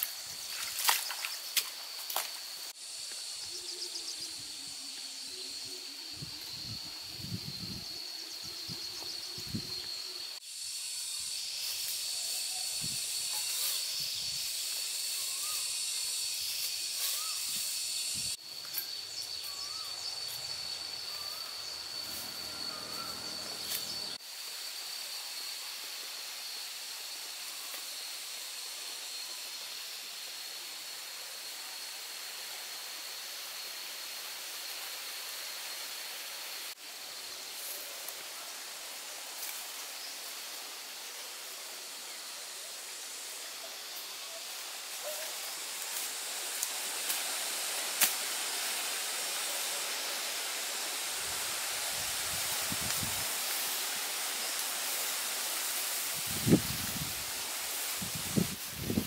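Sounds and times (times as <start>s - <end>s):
high hiss: 0.0s - 59.0s
faint chirps: 3.0s - 24.2s
high-pitched drone: 19.6s - 24.2s.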